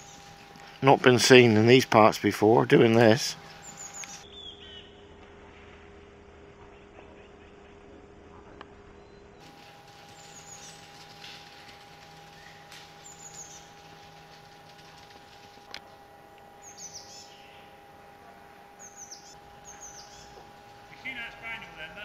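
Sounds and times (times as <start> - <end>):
faint steady hum: 0.0 - 22.0
small bird chirping: 3.4 - 5.1, 10.1 - 10.8, 12.4 - 13.8, 16.6 - 17.8, 18.8 - 20.4.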